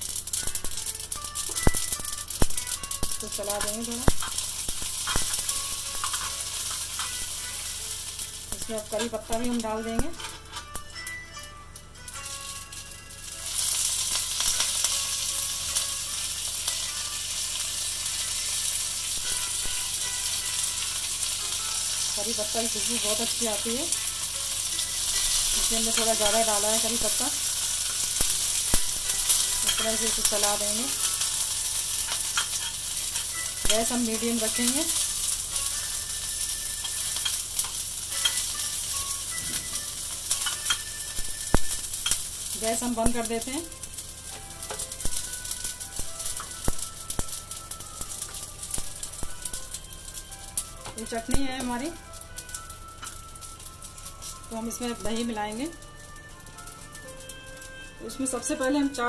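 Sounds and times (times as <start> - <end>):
leaves and seeds sizzling in oil: 0.0 - 59.0
spoon stirring and scraping pan: 2.6 - 10.9, 18.3 - 43.5.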